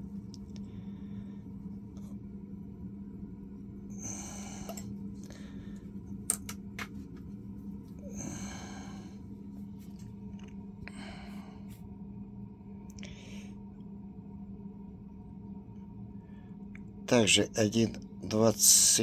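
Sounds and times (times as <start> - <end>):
low hum: 0.0 - 19.0
breathy hisses: 3.9 - 5.8, 8.0 - 9.2.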